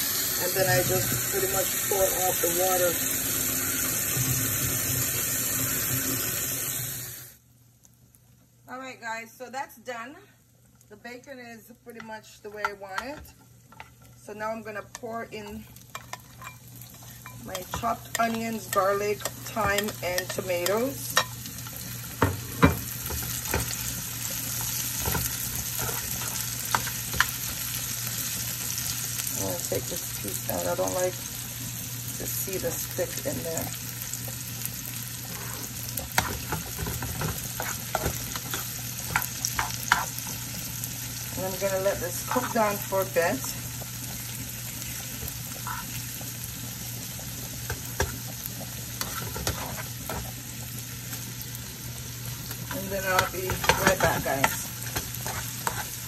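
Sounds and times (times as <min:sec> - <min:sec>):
food sizzling in a frying pan: 0:00.0 - 0:56.0
spatula scraping a pan: 0:15.7 - 0:23.9, 0:24.5 - 0:27.6, 0:35.2 - 0:40.7, 0:41.6 - 0:42.9, 0:45.5 - 0:46.0, 0:48.9 - 0:50.3, 0:52.7 - 0:56.0.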